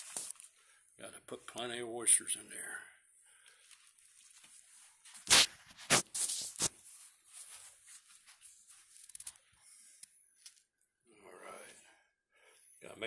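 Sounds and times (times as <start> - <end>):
crisp rustling: 0.0 - 0.8, 3.3 - 9.5.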